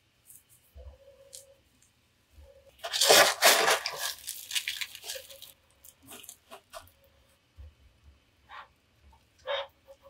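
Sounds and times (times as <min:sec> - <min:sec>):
crunchy rustling: 0:02.7 - 0:06.9.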